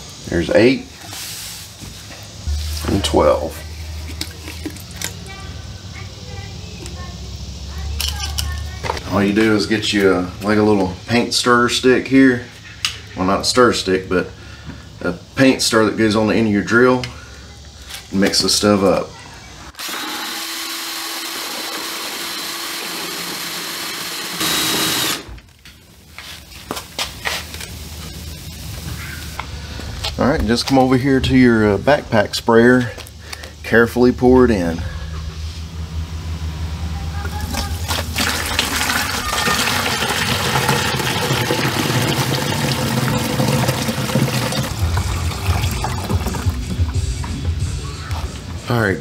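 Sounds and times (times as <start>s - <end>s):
cordless drill whirring: 19.8s - 25.4s
liquid pouring into plastic tank: 37.4s - 46.8s.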